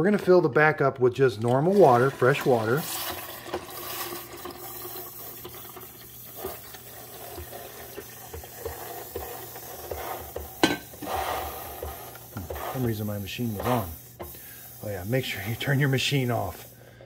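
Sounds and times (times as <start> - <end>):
water pouring into coffee maker: 1.0 - 12.9.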